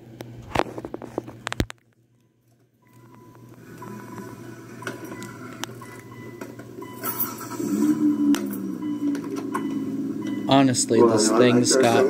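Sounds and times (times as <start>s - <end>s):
faint steady tones: 2.0s - 12.0s
car engine idling: 3.6s - 12.0s.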